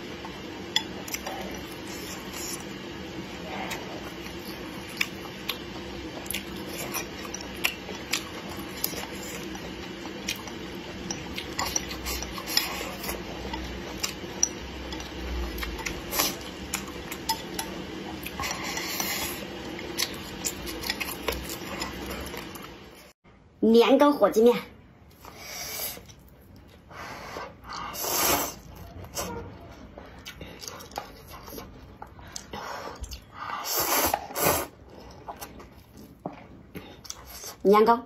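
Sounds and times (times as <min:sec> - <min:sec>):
slurping: 0:26.8 - 0:29.3, 0:32.4 - 0:36.1.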